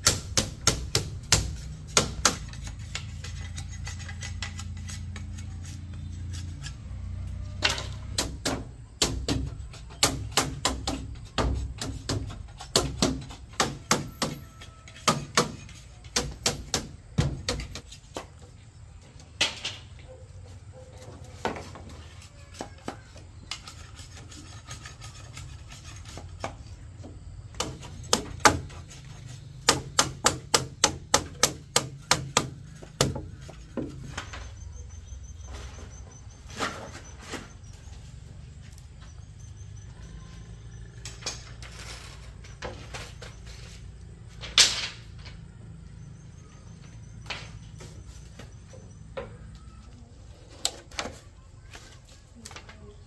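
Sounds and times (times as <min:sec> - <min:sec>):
sharp blows on bamboo: 0:00.0 - 0:03.5, 0:08.0 - 0:17.9, 0:27.5 - 0:33.5.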